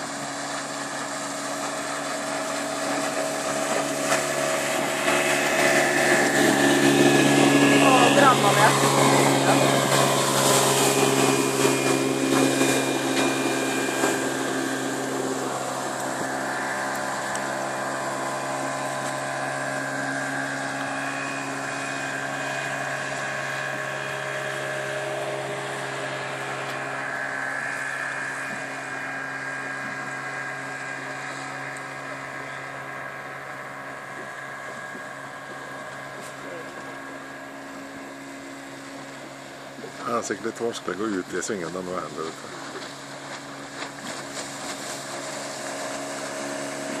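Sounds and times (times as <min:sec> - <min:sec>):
motorboat engine running: 0:00.0 - 0:47.0
water rushing past hull: 0:00.0 - 0:47.0.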